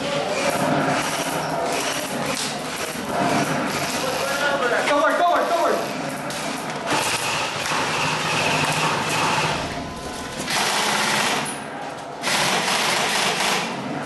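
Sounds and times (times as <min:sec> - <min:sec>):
airsoft rifle full-auto bursts: 0:06.9 - 0:09.7, 0:10.5 - 0:11.4, 0:12.2 - 0:13.7.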